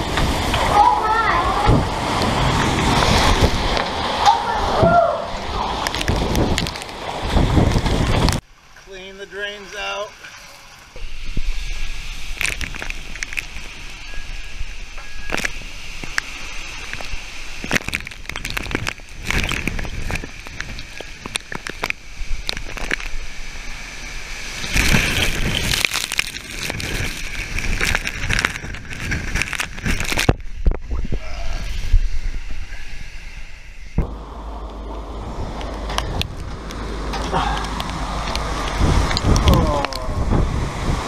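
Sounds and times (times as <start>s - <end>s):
storm wind: 0.0s - 8.7s, 10.6s - 41.0s
driving rain: 0.0s - 32.7s, 34.0s - 41.0s
rattling crackles: 12.0s - 23.7s, 24.4s - 30.8s.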